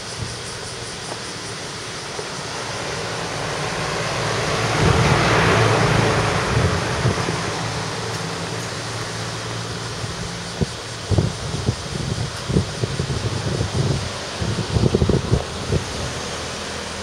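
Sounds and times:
vehicle passing by: 0:02.3 - 0:10.6.

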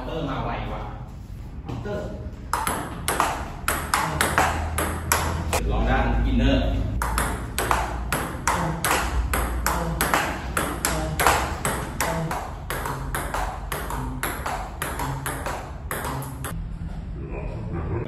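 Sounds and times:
table tennis ball hitting rackets: 0:02.4 - 0:05.6, 0:07.0 - 0:16.6.

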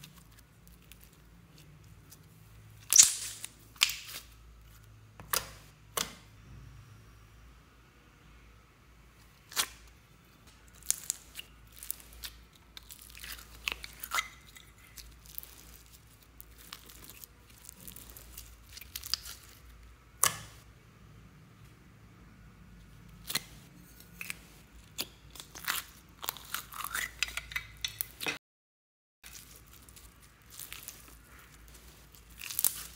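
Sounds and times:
foam beads crunching: 0:29.2 - 0:32.9.

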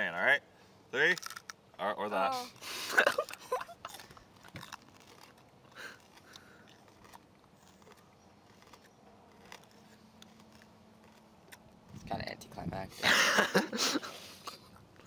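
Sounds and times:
mouth clicks of chewing: 0:03.0 - 0:11.7.

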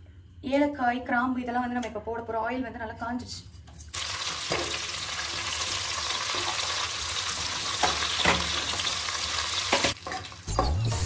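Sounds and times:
spices sizzling in hot oil: 0:03.9 - 0:11.0.

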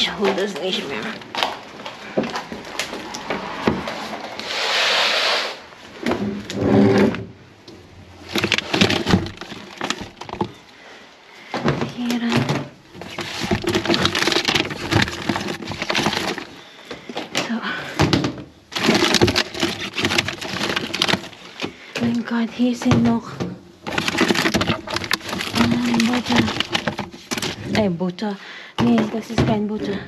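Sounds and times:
plastic packs crinkling in bin: 0:08.1 - 0:22.8, 0:23.8 - 0:27.9.

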